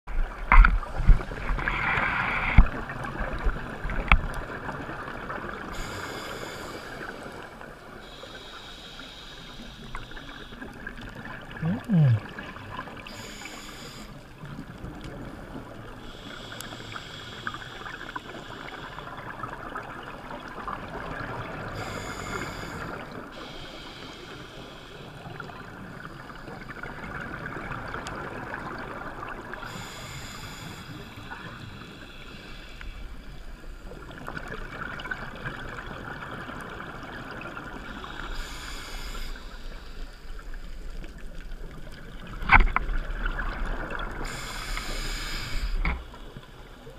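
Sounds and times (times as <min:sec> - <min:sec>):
regulator hissing inhales: 0:05.7 - 0:07.4, 0:08.0 - 0:10.6, 0:13.0 - 0:14.3, 0:16.0 - 0:19.1, 0:21.8 - 0:25.3, 0:29.6 - 0:33.4, 0:37.9 - 0:40.2, 0:44.2 - 0:46.4
bubbling exhalations: 0:11.6 - 0:12.6.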